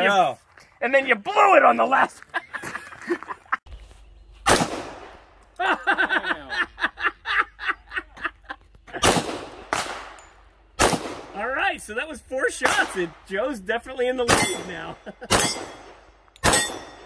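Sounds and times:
handgun shots: 14.3 - 17.0.

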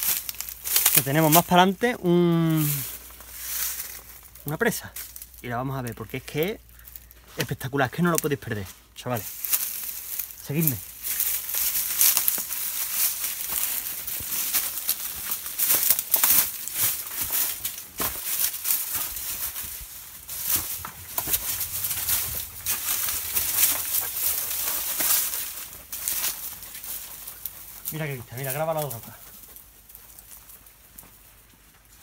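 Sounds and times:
footsteps on dry grass and rocks: 0.0 - 32.0
brush rustling against clothing: 8.5 - 32.0.

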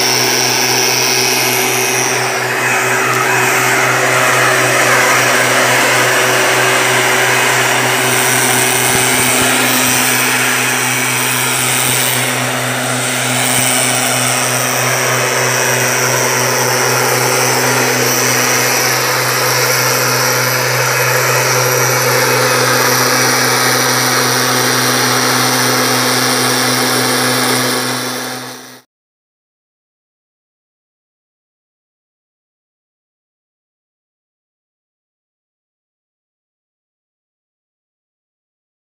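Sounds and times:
mist blower engine running: 0.0 - 28.8.

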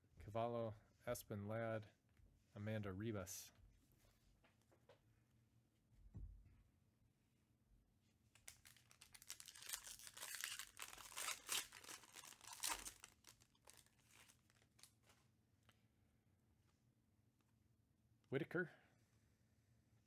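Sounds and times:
thump: 6.1 - 6.5
foil pack crinkling and tearing: 8.4 - 15.0.

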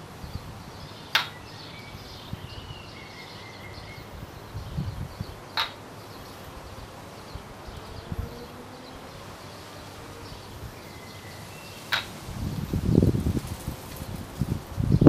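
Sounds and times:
wooden ball clacking on wood: 1.1 - 1.4, 5.5 - 5.8, 11.9 - 12.1.

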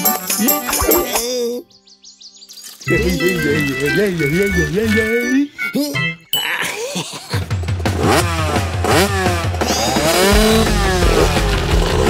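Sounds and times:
cartoon motor revving: 8.0 - 12.0.

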